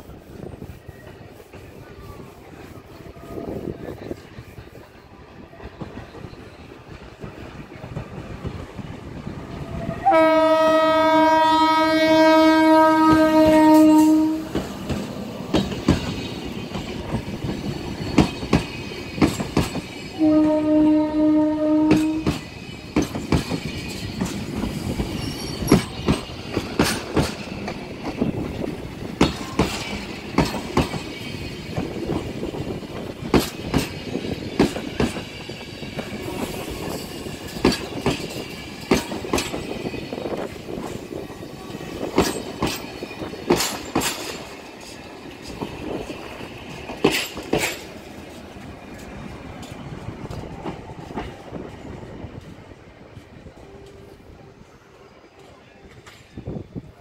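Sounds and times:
locomotive horn blasts: 9.8s - 14.6s, 20.2s - 22.3s
train wheels clicking over rail joints: 12.6s - 20.5s, 21.8s - 54.1s.

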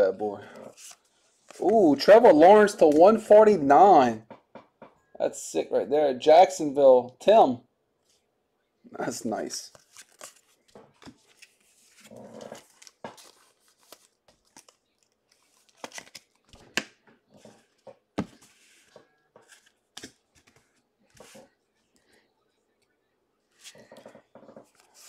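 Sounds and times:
cards clicking and tapping: 15.7s - 17.2s.

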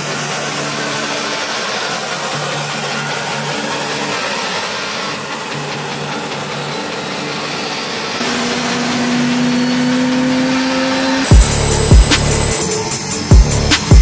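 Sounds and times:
jet engines roaring: 0.0s - 14.0s
rising jet whine: 0.0s - 14.0s
deep bass hit: 11.3s - 12.6s, 13.3s - 14.0s.

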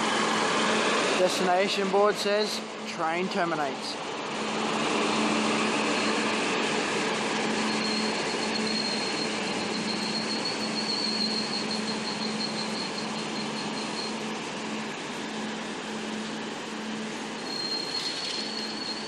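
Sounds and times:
high squeal: 7.4s - 14.3s, 17.4s - 19.0s.

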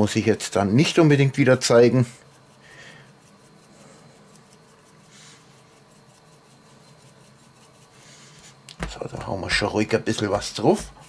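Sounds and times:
spice shaker rustling: 0.7s - 8.7s.

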